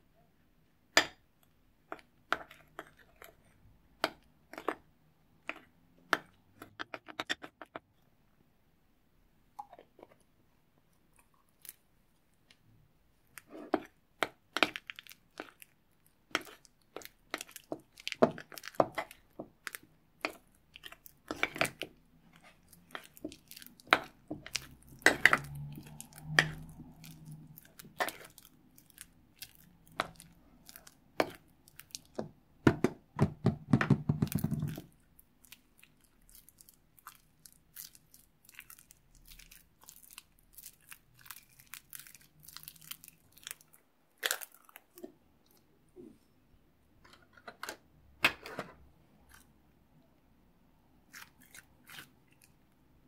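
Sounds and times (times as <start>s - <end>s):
slime stirred with metal spoon: 0.9s - 8.0s, 9.5s - 33.1s, 34.1s - 46.1s, 51.0s - 53.0s
sticky slime crackles and pops: 13.4s - 32.3s, 34.4s - 45.0s.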